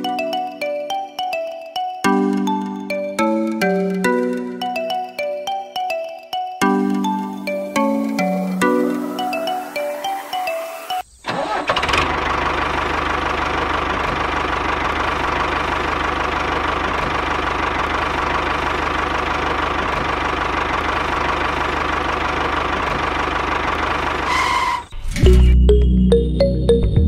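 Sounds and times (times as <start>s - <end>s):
diesel tractor engine chugging: 11.3s - 24.9s.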